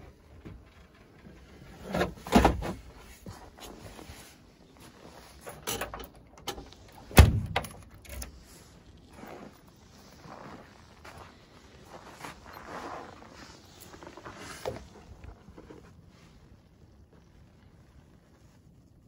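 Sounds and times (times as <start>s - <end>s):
car boot lid slamming: 7.1s - 7.8s.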